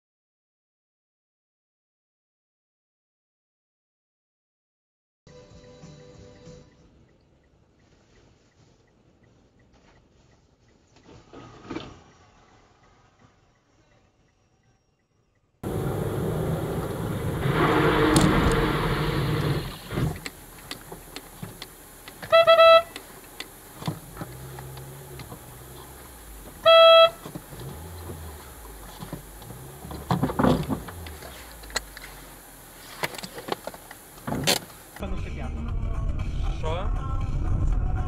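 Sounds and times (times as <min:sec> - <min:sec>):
low steady car noise: 0:05.9 - 0:35.1
car horn blasts: 0:15.6 - 0:19.8, 0:22.2 - 0:23.2, 0:24.3 - 0:31.1
loud rushing noise: 0:15.6 - 0:20.3.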